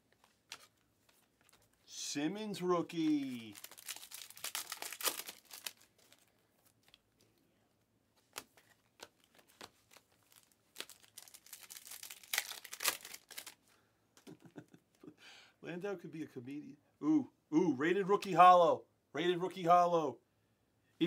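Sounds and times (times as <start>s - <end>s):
wrappers crinkling and tearing: 2.8s - 7.1s, 8.4s - 13.6s.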